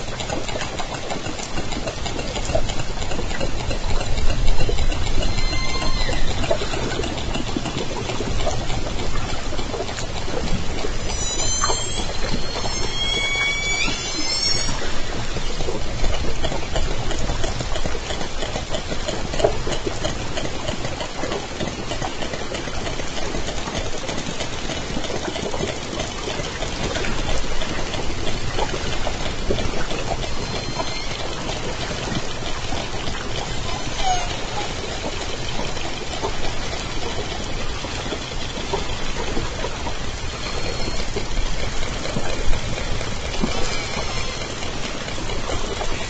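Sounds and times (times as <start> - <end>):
killer whale pulsed calls: 0.0 - 17.2, 26.9 - 37.2, 38.5 - 46.0.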